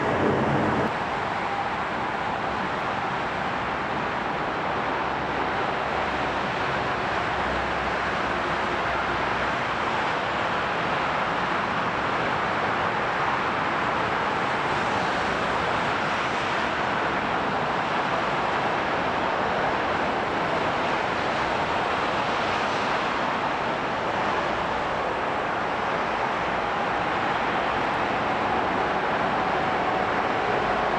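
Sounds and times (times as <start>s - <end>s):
jet engines running: 0.0s - 7.0s.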